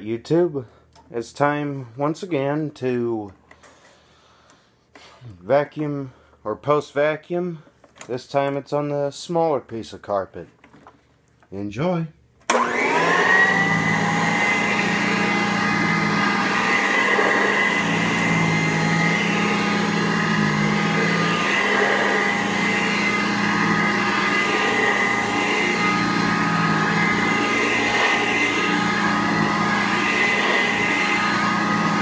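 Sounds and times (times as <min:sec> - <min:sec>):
vacuum cleaner motor whine: 0:12.5 - 0:32.0.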